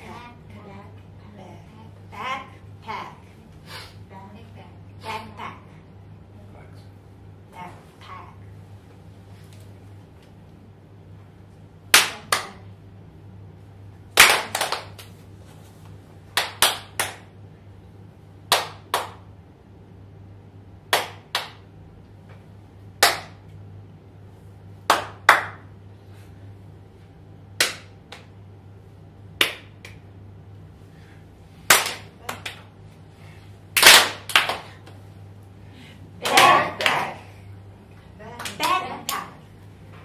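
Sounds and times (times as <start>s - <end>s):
sharp percussive cracks: 31.7s - 32.6s, 33.8s - 34.6s.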